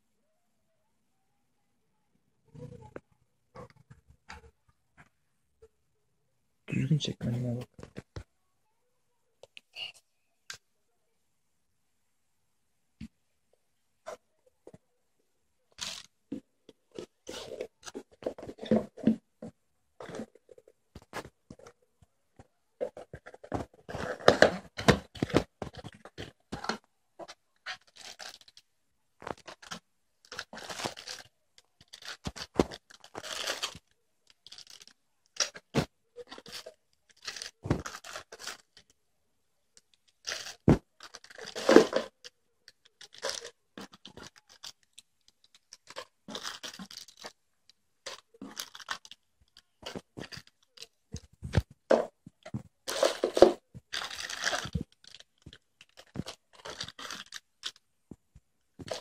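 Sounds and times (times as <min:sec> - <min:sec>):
cardboard and plastic rustling: 0:15.8 - 0:21.8, 0:22.4 - 0:28.6, 0:29.2 - 0:38.9, 0:39.8 - 0:47.4, 0:48.0 - 0:59.0.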